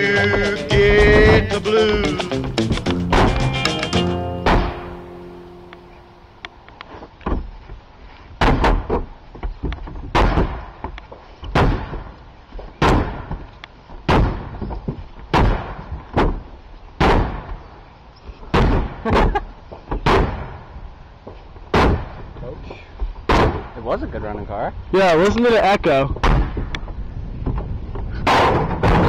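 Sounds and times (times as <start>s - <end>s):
loud metallic thuds on car roof: 4.4s - 5.0s.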